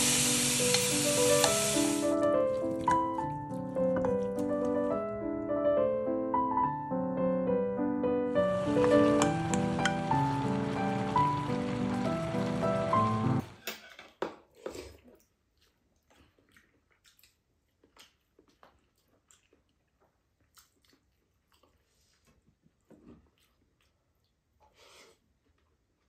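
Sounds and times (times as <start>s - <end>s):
quiet chewing: 14.6s - 26.0s.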